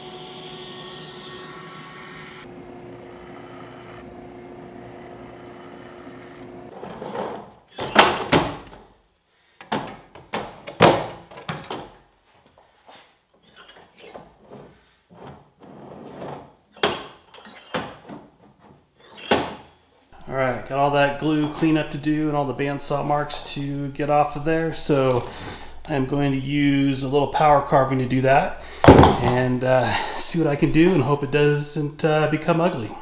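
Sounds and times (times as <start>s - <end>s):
belt sander running: 0.0s - 6.7s
wooden knocks and clunks: 9.6s - 12.0s, 28.8s - 29.5s.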